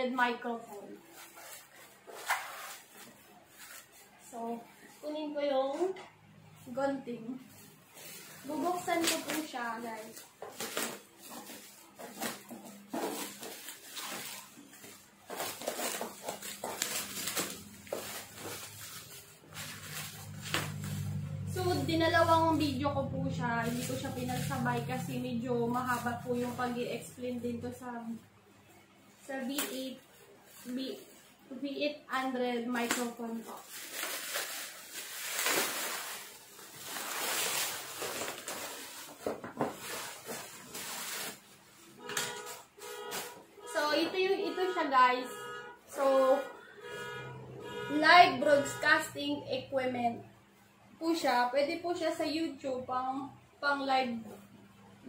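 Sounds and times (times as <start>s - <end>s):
plastic crinkling and rustling: 1.0s - 5.8s, 7.1s - 27.1s, 29.2s - 31.5s, 32.2s - 44.4s.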